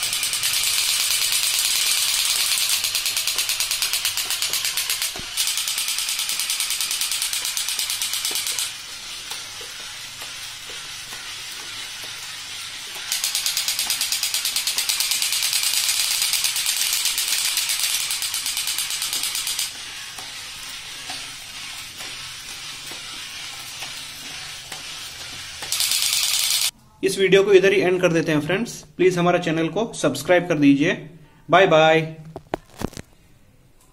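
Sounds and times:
toy machine-gun sound effect: 0:00.0 - 0:26.7
toy gears whirring and clicking: 0:00.0 - 0:26.8.

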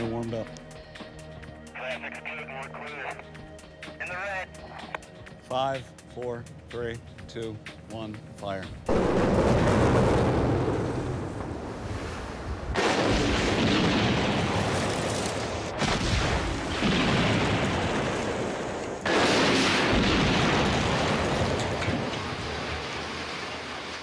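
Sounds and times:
explosion booms with rumble: 0:08.9 - 0:11.7, 0:12.7 - 0:14.9, 0:15.7 - 0:23.8.

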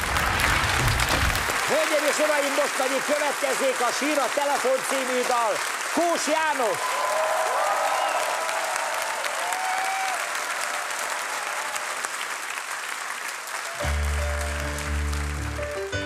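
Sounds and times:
audience applauding: 0:00.0 - 0:16.0
piano chords: 0:13.8 - 0:16.0.

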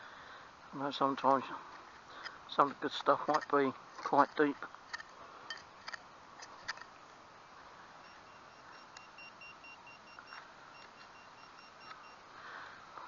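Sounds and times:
pinpointer pulsed beeping: 0:08.0 - 0:12.2.

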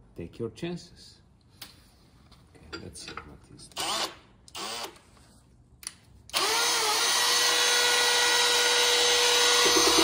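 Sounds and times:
cordless drill running: 0:06.3 - 0:10.0.

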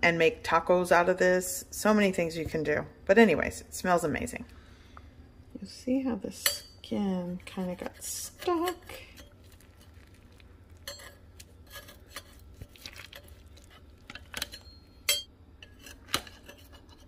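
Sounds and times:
metal spatula clinking on crock: 0:06.4 - 0:06.8, 0:10.8 - 0:12.3, 0:14.1 - 0:15.8.

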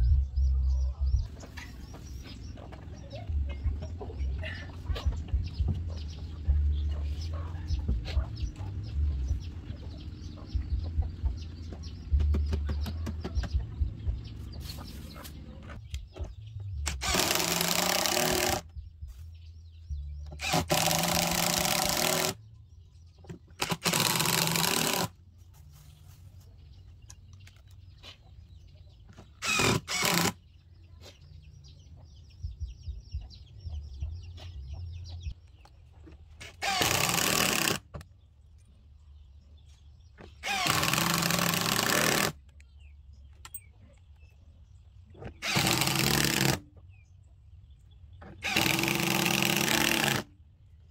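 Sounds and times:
chickens clucking: 0:00.7 - 0:16.7, 0:25.5 - 0:29.4, 0:30.4 - 0:36.6
power drill boring into wood: 0:16.9 - 0:18.6, 0:20.4 - 0:22.4, 0:23.6 - 0:25.1, 0:29.4 - 0:30.4, 0:36.4 - 0:37.8, 0:40.4 - 0:42.3, 0:45.4 - 0:46.6, 0:48.4 - 0:50.3.

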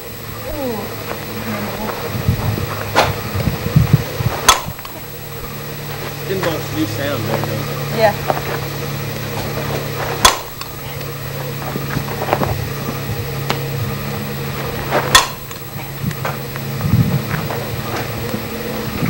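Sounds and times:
steady low hum: 0:00.0 - 0:19.0
bat hitting ball: 0:02.7 - 0:05.0, 0:10.0 - 0:10.7, 0:14.7 - 0:15.6.

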